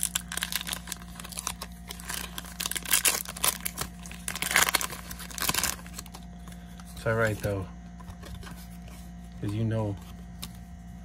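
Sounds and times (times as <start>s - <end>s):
foil wrapper crinkling: 0.0s - 7.4s
cards being handled: 0.0s - 11.0s.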